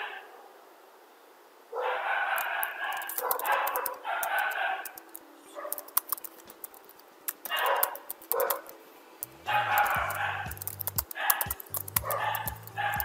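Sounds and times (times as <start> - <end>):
dog barking: 0.0 - 0.6, 1.7 - 6.0, 7.4 - 8.7, 9.5 - 13.0
keyboard typing: 2.4 - 13.0.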